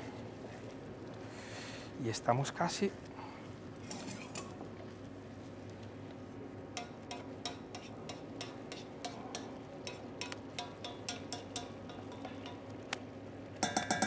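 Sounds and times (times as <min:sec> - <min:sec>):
risotto stirred in pan: 0:02.2 - 0:14.0
utensil tapping against pan: 0:06.7 - 0:12.8, 0:13.6 - 0:14.0.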